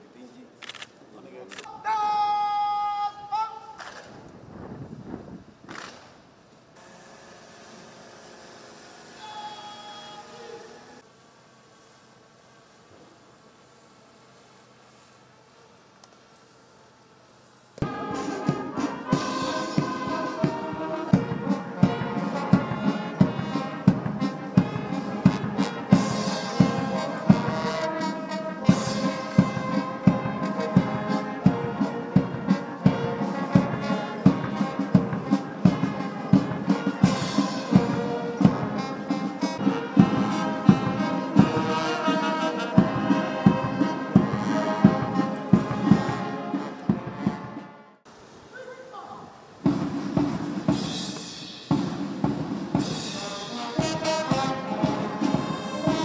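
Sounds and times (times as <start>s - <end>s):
brass band playing a march: 9.0s - 11.1s, 17.8s - 48.1s, 49.5s - 56.0s
steady drum beat: 17.8s - 47.7s, 49.5s - 56.0s.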